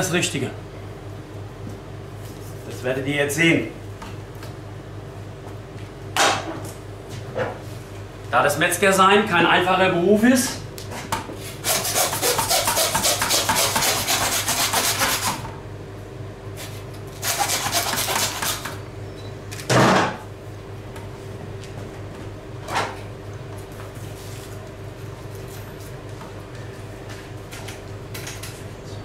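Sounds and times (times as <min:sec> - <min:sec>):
steady low hum: 0:00.0 - 0:29.0
knife scraping through carcass: 0:11.4 - 0:15.3, 0:16.6 - 0:18.7.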